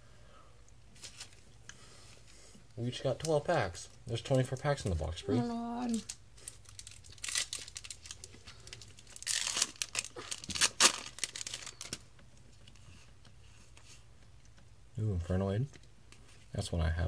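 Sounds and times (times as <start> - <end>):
foil wrapper tearing and crinkling: 5.9 - 12.1.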